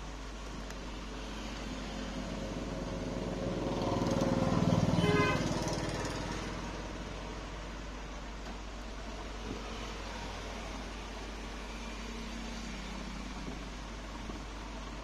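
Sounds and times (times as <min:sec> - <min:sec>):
steady low hum: 0:00.0 - 0:15.0
vehicle engine passing by: 0:01.3 - 0:07.5.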